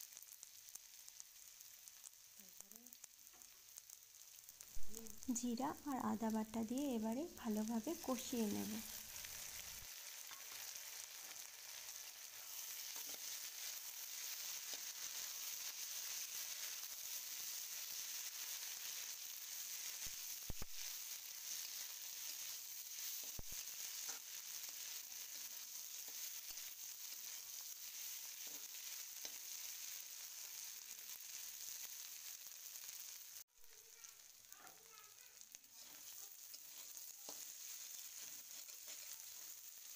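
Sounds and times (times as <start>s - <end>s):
spatula stirring in wok: 0.0s - 39.9s
vegetables sizzling in oil: 0.0s - 39.9s.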